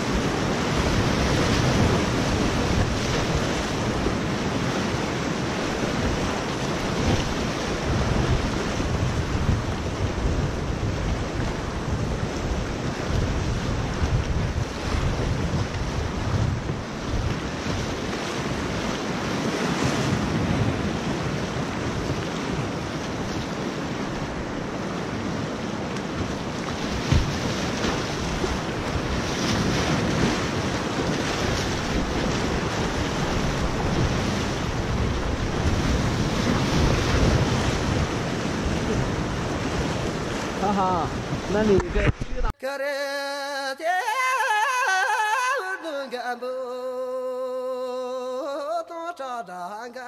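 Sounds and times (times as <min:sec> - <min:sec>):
rapids rushing and splashing: 0:00.0 - 0:42.6
wind buffeting microphone: 0:00.0 - 0:42.6
short thump: 0:27.1 - 0:27.3.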